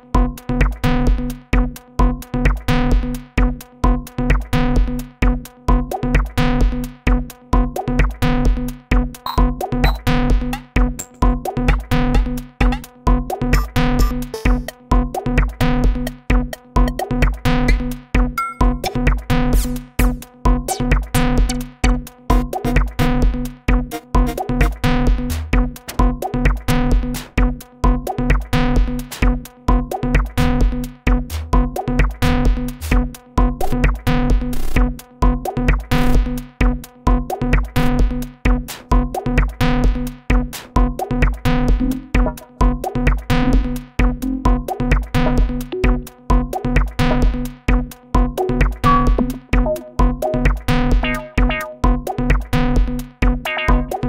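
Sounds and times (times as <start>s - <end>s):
techno drum beat: 0.0s - 54.0s
looping techno synth line: 23.8s - 25.6s, 40.9s - 47.5s, 48.2s - 54.0s.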